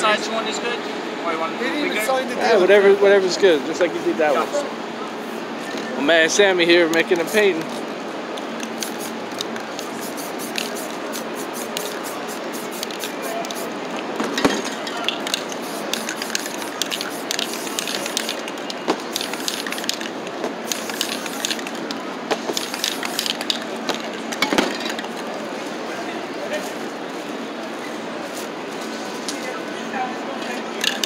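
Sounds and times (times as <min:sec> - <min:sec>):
spray paint cans hissing: 0:07.1 - 0:07.8, 0:08.6 - 0:13.8, 0:14.8 - 0:24.2, 0:30.8 - 0:31.0.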